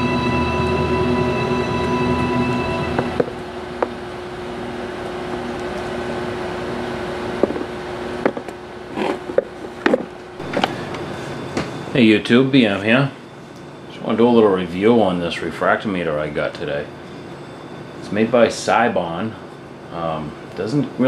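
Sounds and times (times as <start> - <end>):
sustained music chord: 0.0 - 5.2
steady low hum: 0.0 - 21.0.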